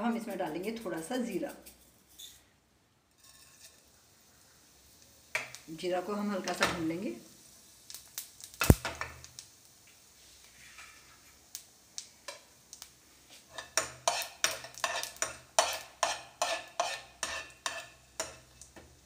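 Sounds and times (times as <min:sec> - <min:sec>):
seeds roasting in oil: 0:00.0 - 0:02.4, 0:03.1 - 0:19.0
spoon scraping frying pan: 0:03.2 - 0:04.0, 0:13.3 - 0:18.8
spoon tapping pan: 0:13.6 - 0:18.9.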